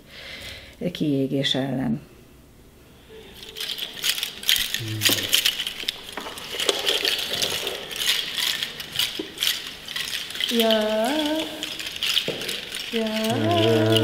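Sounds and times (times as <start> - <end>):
shaker rattle clattering: 3.1 - 14.0
person singing rising note: 13.0 - 14.0.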